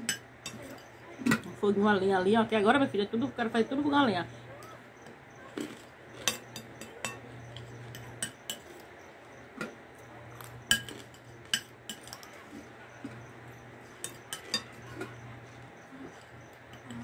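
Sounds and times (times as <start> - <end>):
spoon clinking against glass bowl: 0.0 - 1.5, 5.6 - 17.0.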